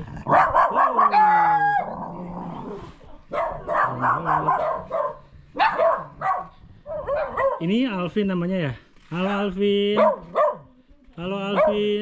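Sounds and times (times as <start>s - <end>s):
puppies barking and whining: 0.2s - 2.0s, 3.1s - 7.6s.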